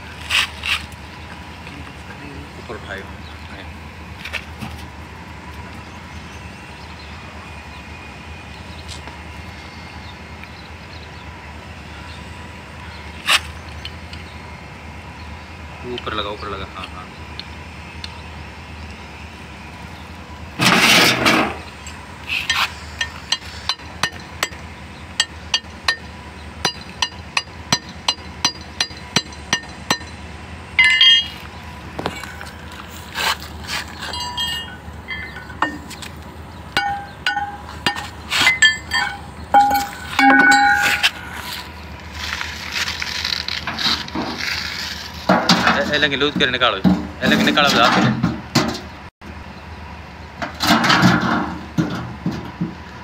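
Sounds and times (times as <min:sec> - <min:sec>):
steel tools clinking on metal: 0:30.8 - 0:31.4, 0:34.0 - 0:36.1, 0:36.8 - 0:41.5
rasping clatter: 0:32.0 - 0:36.2, 0:36.8 - 0:46.0.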